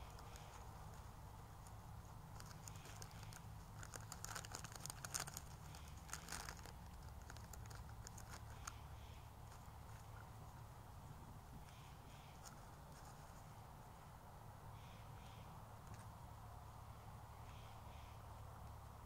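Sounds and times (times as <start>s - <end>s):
faint crinkling clicks: 0.0s - 8.8s
steady low hum: 0.0s - 19.0s.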